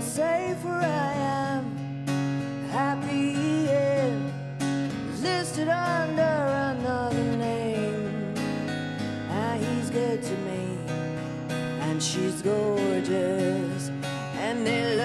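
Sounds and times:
woman singing: 0.0 - 1.8, 2.6 - 4.4, 5.1 - 8.5, 9.3 - 11.0, 11.8 - 15.0
strummed acoustic guitars: 0.0 - 15.0.

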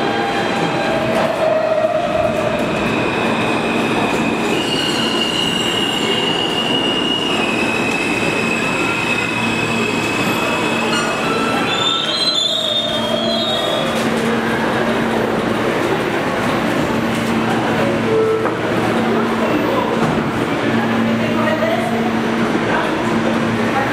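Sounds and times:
subway train rumble: 0.0 - 23.9
metallic wheel squeal: 3.8 - 13.9.

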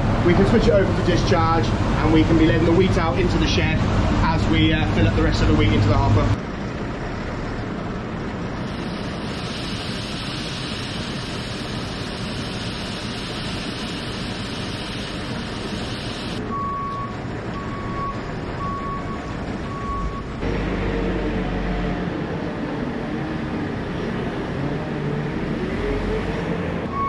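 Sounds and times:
engine running: 0.0 - 26.8
reversing alarm beeps: 16.0 - 20.4.

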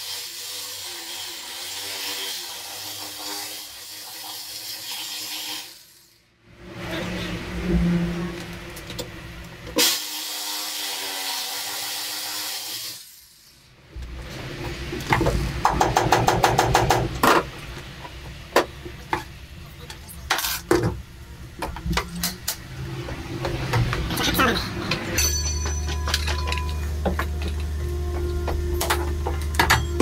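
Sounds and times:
metallic knocks and clanks: 24.9 - 30.0.

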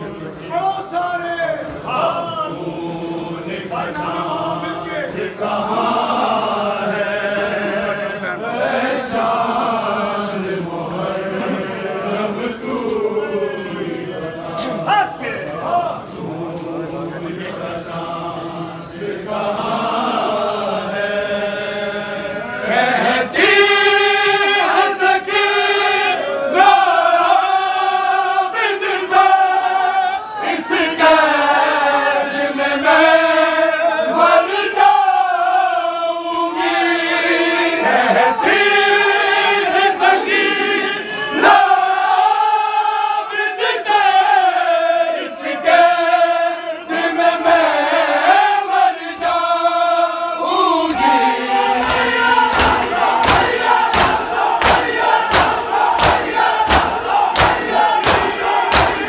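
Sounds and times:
men chanting in unison: 1.6 - 59.0.

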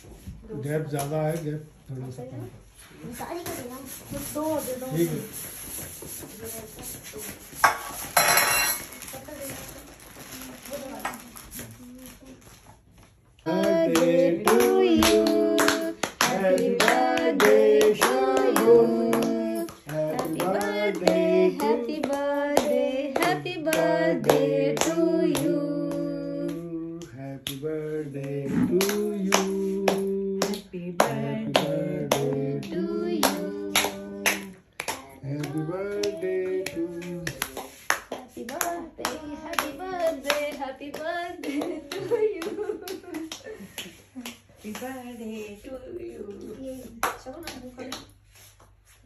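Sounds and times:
people singing together: 13.4 - 37.8.

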